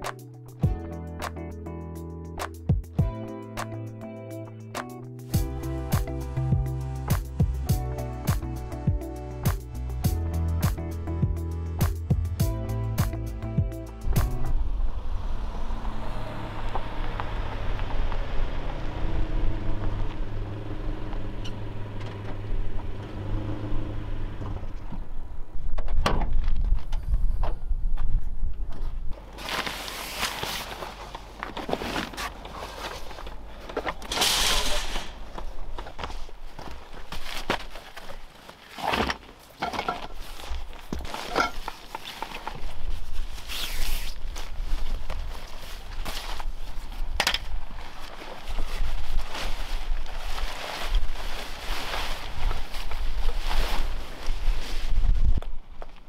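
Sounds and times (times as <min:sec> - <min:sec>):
van engine running: 0:12.2 - 0:25.5
footsteps: 0:28.0 - 0:43.5
tyres rolling on gravel: 0:29.2 - 0:43.3
nylon tent fabric rustling: 0:29.2 - 0:55.9.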